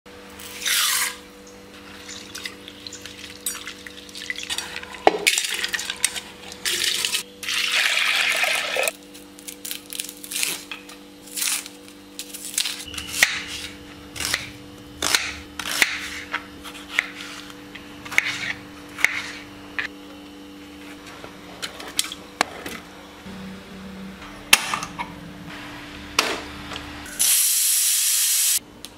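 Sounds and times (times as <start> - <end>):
low hum: 11.8 - 27.2.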